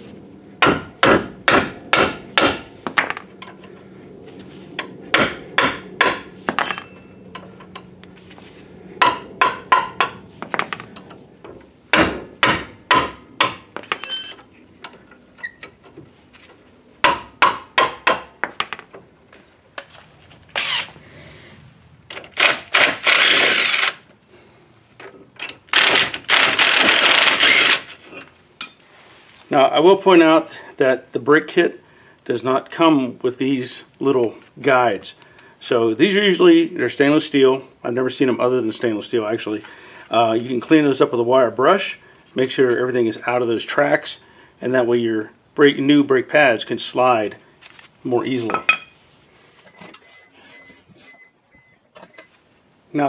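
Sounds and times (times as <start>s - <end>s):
hammer blows on wrench: 6.5s - 10.2s
impact driver whirring: 20.6s - 21.0s, 22.3s - 24.0s, 25.7s - 27.9s.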